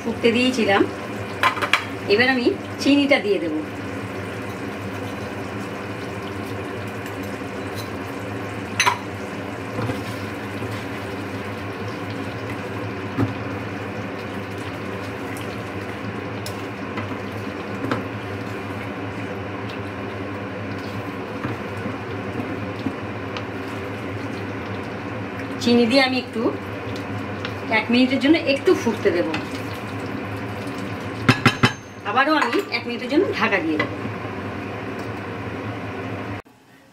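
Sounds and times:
curry bubbling in a pan: 0:00.6 - 0:31.5.

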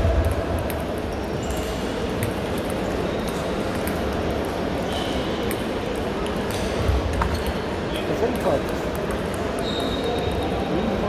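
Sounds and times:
murmur of busy sports hall: 0:00.0 - 0:11.0
table tennis ball clicks: 0:00.2 - 0:07.5.

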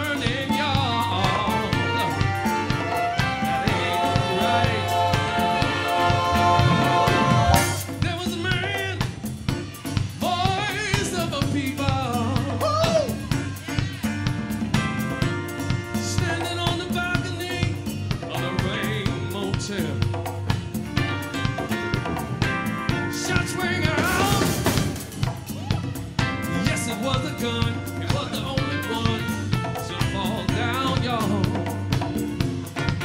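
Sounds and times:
person singing wavering voice: 0:00.0 - 0:08.0
drum kit steady beat: 0:00.0 - 0:33.0.

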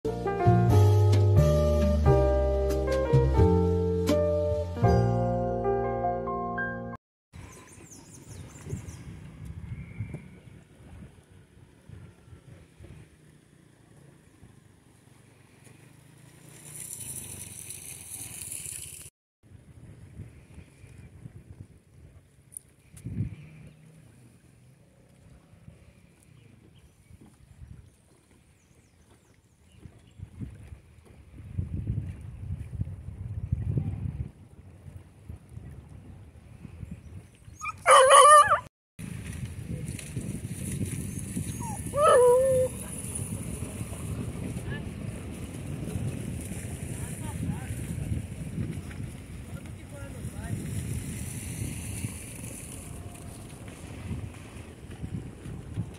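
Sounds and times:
wind rumbling on microphone: 0:07.4 - 0:13.4, 0:16.8 - 0:55.9
water splashing in shallows: 0:07.4 - 0:33.1, 0:39.0 - 0:55.9
dog barking: 0:37.7 - 0:38.7.

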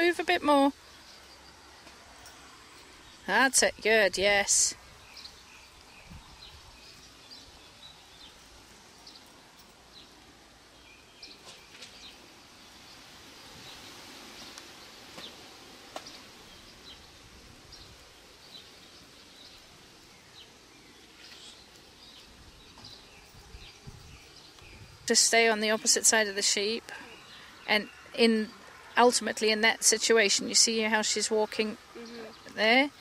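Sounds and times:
background hiss: 0:00.0 - 0:33.0
bird chirps: 0:17.7 - 0:29.5.

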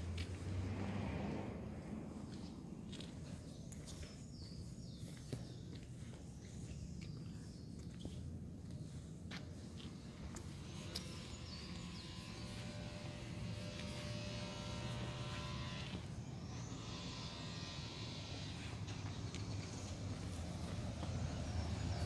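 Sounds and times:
buzzing motor hum: 0:10.2 - 0:22.0.

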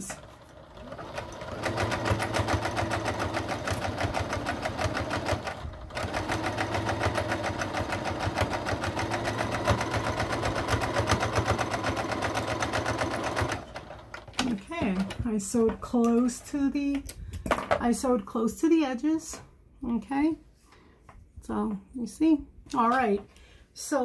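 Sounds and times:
electric sewing machine stitching: 0:00.0 - 0:14.6.

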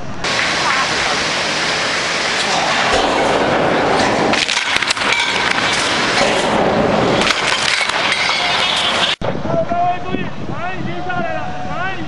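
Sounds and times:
firecrackers crackling: 0:00.2 - 0:09.2
sharp cracks: 0:01.8 - 0:09.2.

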